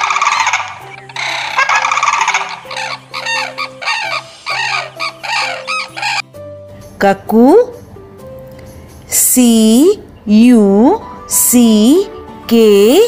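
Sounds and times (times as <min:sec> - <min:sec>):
cranes calling: 0:00.0 - 0:06.3
soft background music: 0:00.0 - 0:13.0.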